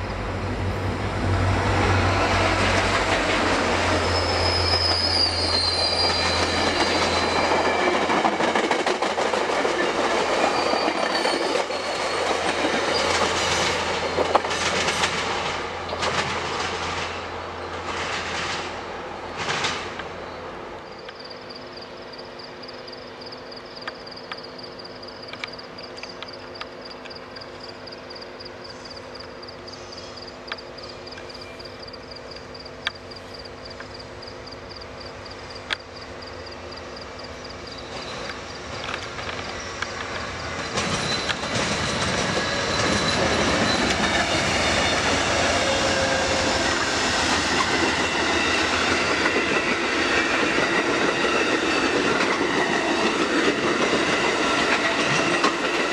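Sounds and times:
train cars rushing past: 0.0s - 23.5s, 24.2s - 55.9s
distant locomotive engine hum: 0.0s - 55.9s
wheels clattering on rail joints: 2.0s - 18.8s, 19.4s - 20.2s, 37.6s - 55.9s.

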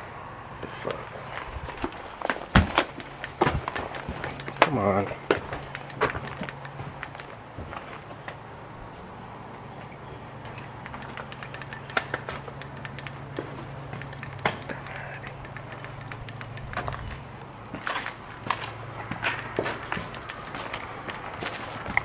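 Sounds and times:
steady low hum: 0.0s - 22.0s
footsteps: 0.6s - 9.1s, 15.4s - 22.0s
wood cracking and snapping: 1.7s - 7.9s.

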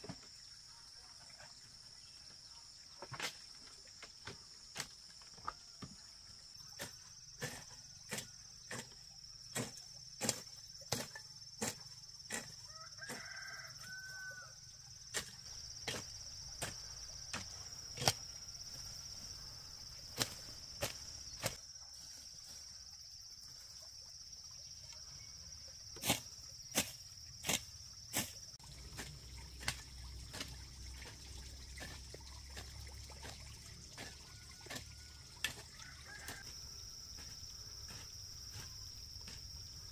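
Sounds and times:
hoe chopping into soil: 6.8s - 13.5s, 15.1s - 18.3s, 20.1s - 21.6s, 26.0s - 30.6s, 34.0s - 36.5s.

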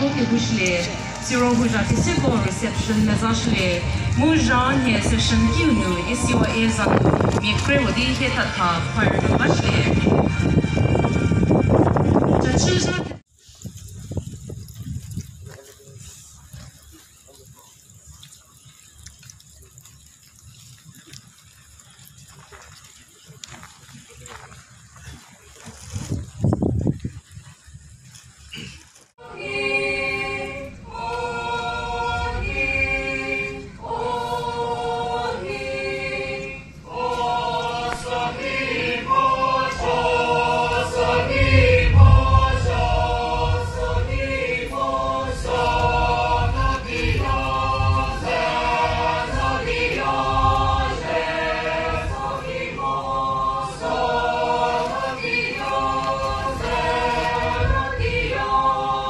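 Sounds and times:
group singing in harmony: 0.0s - 12.2s, 29.2s - 59.0s.

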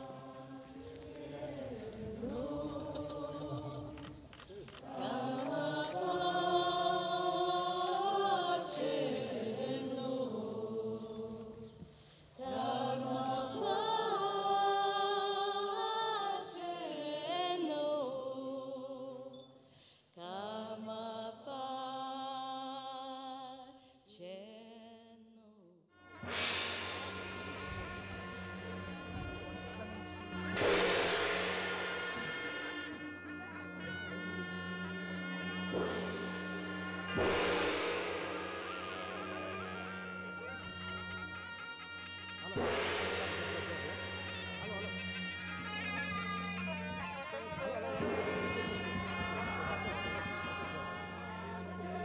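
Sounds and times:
voices singing a chant: 0.0s - 19.6s, 26.2s - 46.6s
loud music: 26.1s - 46.2s.

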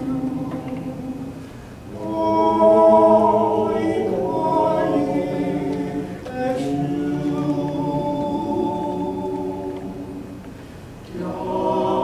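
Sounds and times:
male choir singing a cappella: 0.0s - 10.5s, 11.1s - 12.0s
singer breathing in: 1.4s - 1.9s.

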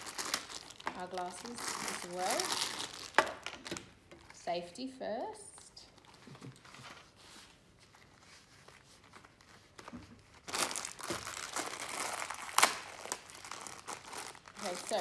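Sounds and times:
gloves rustling: 0.0s - 4.4s, 5.5s - 15.0s
plastic bag crinkling: 0.0s - 4.4s, 8.0s - 15.0s.

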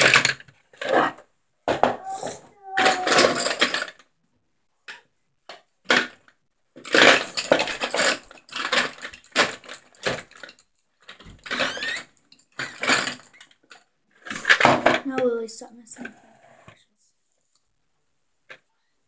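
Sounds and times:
objects clattering: 0.0s - 4.1s, 4.9s - 16.8s
rustling and scraping on wooden table: 16.0s - 16.8s.

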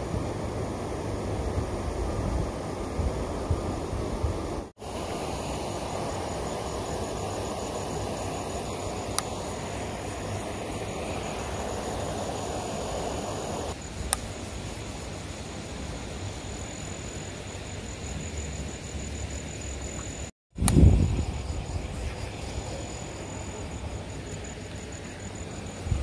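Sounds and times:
river rushing: 4.8s - 13.8s
insect trilling: 4.8s - 26.0s.

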